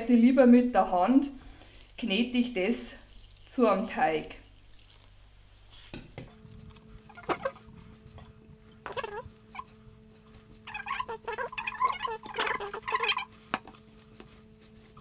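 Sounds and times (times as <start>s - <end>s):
faint steady hum: 0.0s - 15.0s
gloved hand squelching dough: 4.8s - 15.0s.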